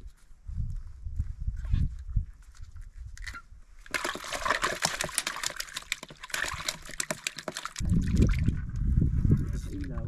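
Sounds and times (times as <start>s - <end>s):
water splashing and sloshing: 3.2s - 8.8s.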